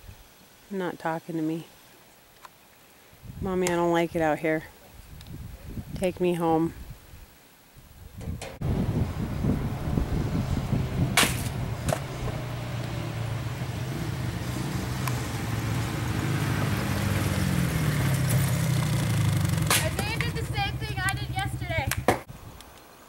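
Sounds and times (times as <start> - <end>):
sharp knocks: 8.2 - 8.6
small off-road engines running: 8.6 - 22.0.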